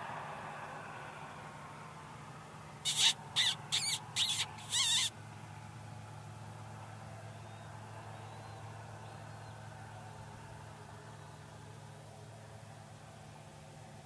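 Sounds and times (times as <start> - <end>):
high-pitched mouth squeaks: 2.9 - 5.1.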